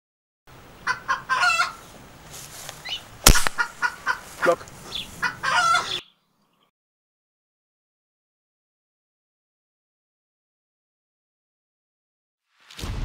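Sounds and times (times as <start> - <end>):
chickens clucking: 0.8 - 2.0, 2.7 - 6.1
air rifle shot: 3.2 - 3.7.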